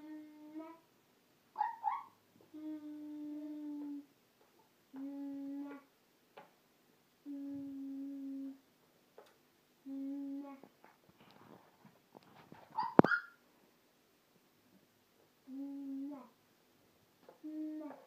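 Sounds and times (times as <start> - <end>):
child humming: 0.0 - 0.8, 2.5 - 4.1, 4.9 - 5.9, 7.2 - 8.6, 9.8 - 10.7, 15.5 - 16.4, 17.4 - 18.0.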